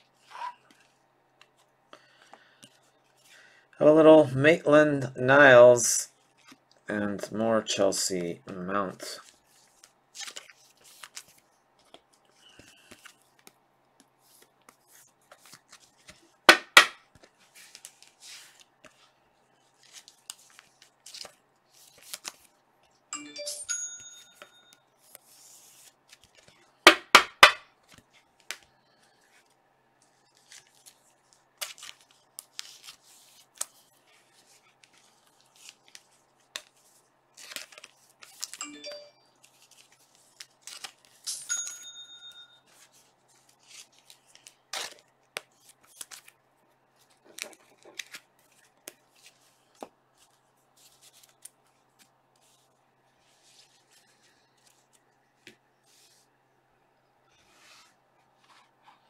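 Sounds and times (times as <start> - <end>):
trading cards rustling: 27.4 - 42.0
short electronic chime: 38.6 - 39.2.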